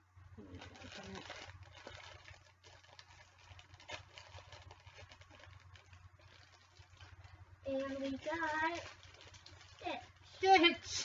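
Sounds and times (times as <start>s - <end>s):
cardboard box crinkling: 0.5s - 10.9s.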